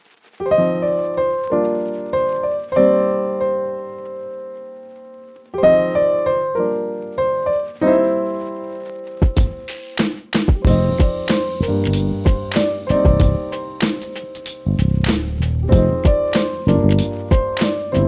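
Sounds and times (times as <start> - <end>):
piano music: 0.4 - 18.0
drum beats: 9.1 - 18.0
held piano chord: 10.7 - 14.8, 15.6 - 18.0.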